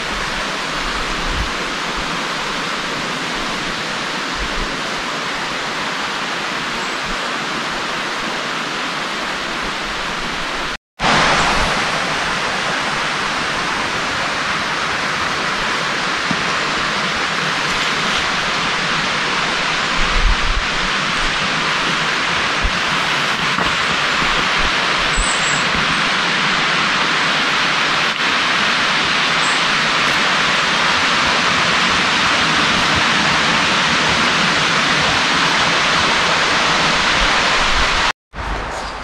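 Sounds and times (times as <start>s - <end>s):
running water rushing: 0.0s - 38.7s.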